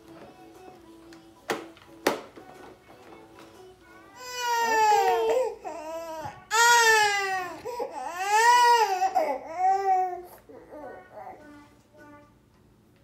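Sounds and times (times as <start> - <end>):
infant crying: 4.2 - 11.0.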